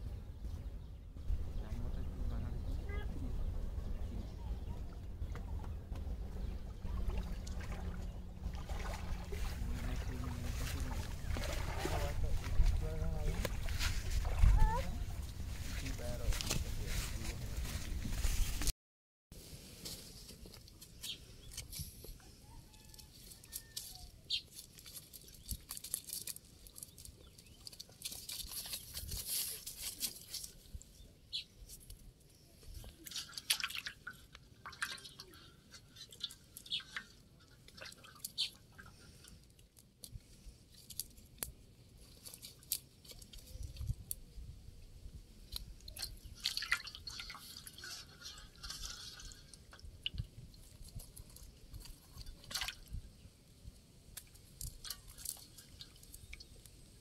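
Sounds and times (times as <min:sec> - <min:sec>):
fish splashing in water: 0:06.9 - 0:12.6, 0:45.8 - 0:51.0
wet fishing net rustling: 0:07.1 - 0:15.6, 0:45.8 - 0:53.0.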